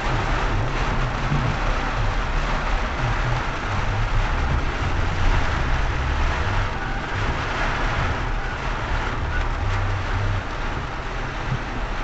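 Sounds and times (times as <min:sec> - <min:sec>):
car rumbling on wet road: 0:00.0 - 0:12.0
rain on car roof: 0:00.0 - 0:12.0.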